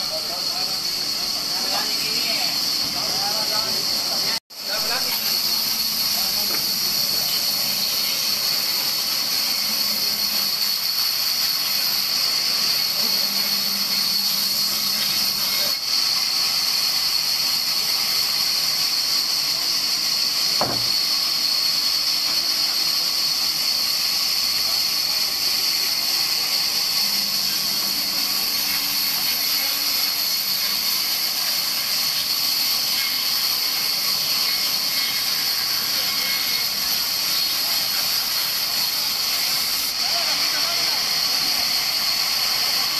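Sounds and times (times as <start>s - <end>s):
band saw cutting wood: 0.0s - 42.9s
single knock: 20.6s - 21.0s
machine hum: 26.2s - 30.6s.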